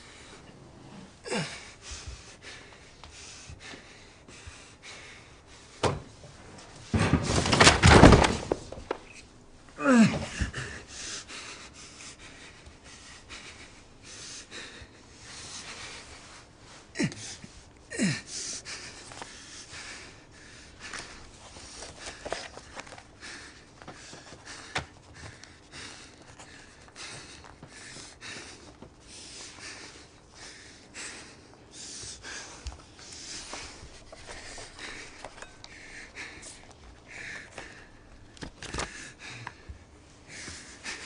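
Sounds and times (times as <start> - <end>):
person breathing: 0.0 - 5.9, 9.8 - 41.0
person sighing: 9.8 - 10.8.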